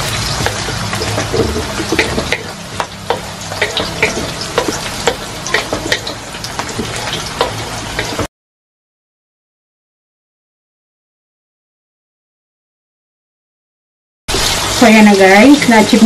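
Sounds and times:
onions sizzling in oil: 0:00.0 - 0:08.3, 0:14.3 - 0:16.0.

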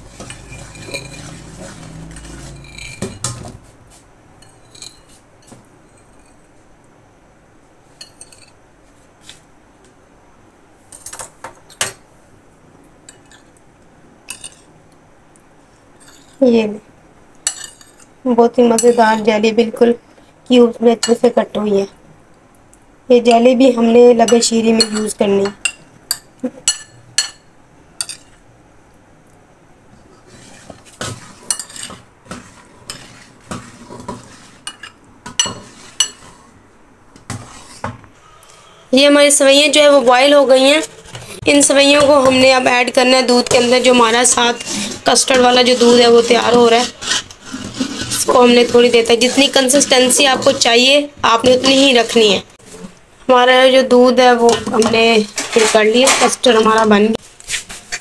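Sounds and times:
cutlery clinking on ceramic plate: 0:00.2 - 0:01.4.

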